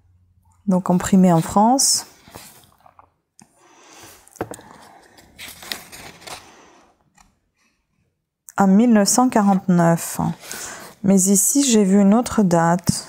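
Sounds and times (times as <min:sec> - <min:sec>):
book pages rustling: 0:01.1 - 0:03.1, 0:04.1 - 0:07.7.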